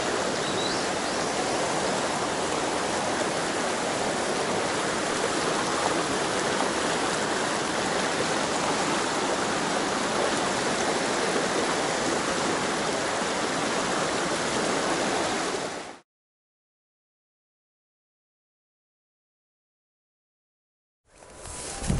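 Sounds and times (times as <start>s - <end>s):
stream rushing over rocks: 0.0s - 16.0s.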